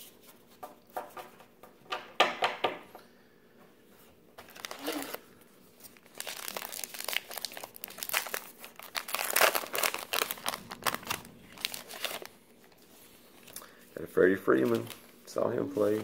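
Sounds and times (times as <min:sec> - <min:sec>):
wrapper tearing and crinkling: 0:04.4 - 0:05.2, 0:05.9 - 0:12.8.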